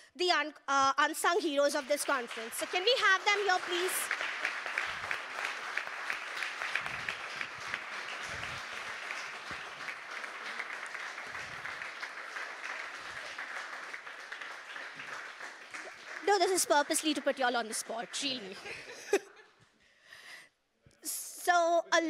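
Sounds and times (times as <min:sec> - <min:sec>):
audience applauding: 0:01.7 - 0:19.2.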